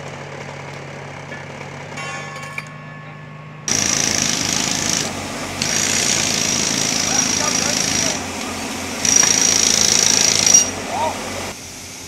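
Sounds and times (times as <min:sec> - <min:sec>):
diesel engine humming: 0:00.0 - 0:12.0
harsh machine noise with hiss: 0:03.7 - 0:12.0.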